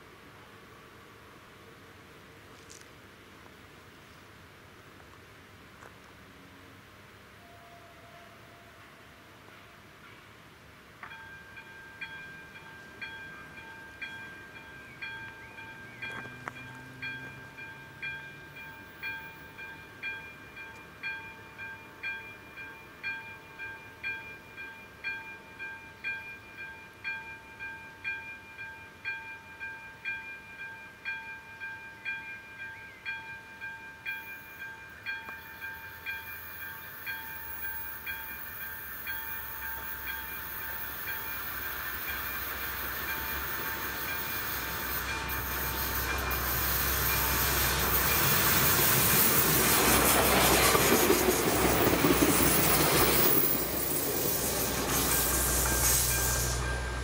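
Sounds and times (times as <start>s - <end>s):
train rumble and rail noise: 0.0s - 57.0s
level crossing warning bell: 11.0s - 50.1s, 51.8s - 57.0s.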